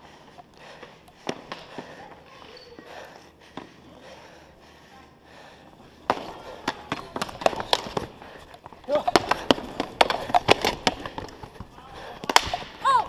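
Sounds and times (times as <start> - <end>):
hockey sticks clacking on floor: 0.3 - 2.9, 6.0 - 13.0.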